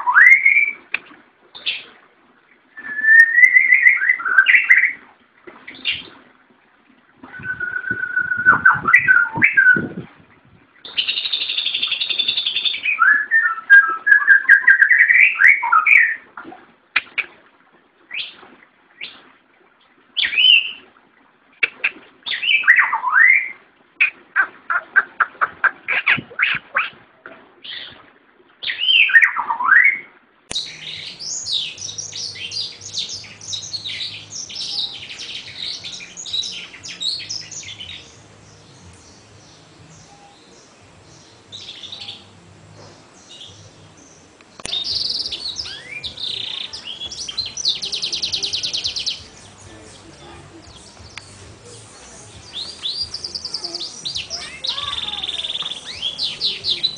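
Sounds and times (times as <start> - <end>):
songbirds singing: 7.2 - 10.0, 10.8 - 16.2, 22.2 - 23.5, 28.6 - 56.9.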